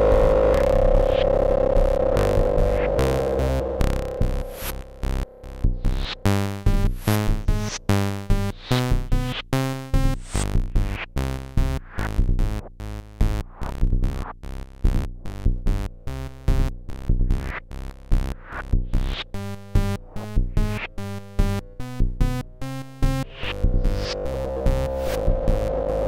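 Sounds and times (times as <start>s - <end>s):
low drum pulse: 0.0s - 9.2s, 21.4s - 26.0s
synthesizer sequenced pattern: 19.0s - 26.0s.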